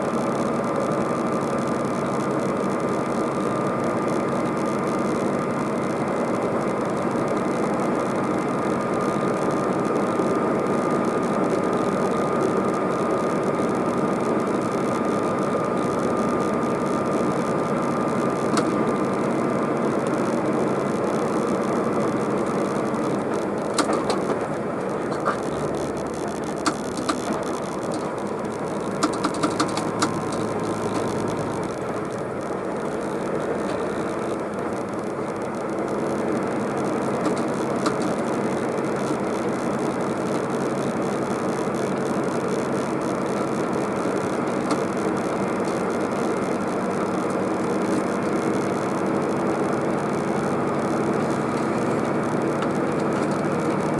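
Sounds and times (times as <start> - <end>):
truck engine and tyre drone: 0.0 - 53.9
sharp clicks: 22.3 - 48.4.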